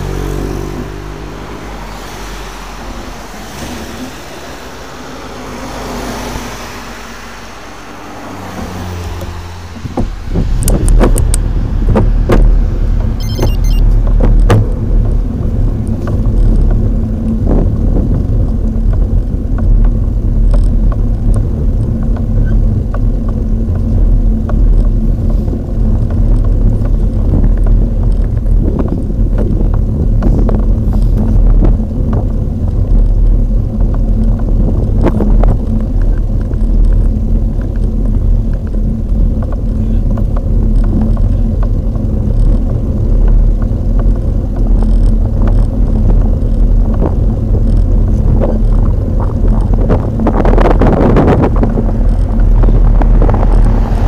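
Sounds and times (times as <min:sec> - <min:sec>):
wind and road rumble: 0:00.0 - 0:54.0
sharp clicks and knocks: 0:08.5 - 0:54.0.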